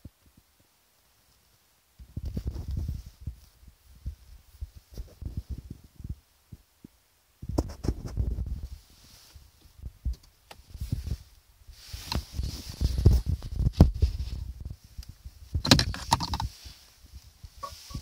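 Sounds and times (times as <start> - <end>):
rustling handling noise: 1.0 - 6.6, 7.5 - 18.0
knocks and sharp clicks: 15.6 - 16.5.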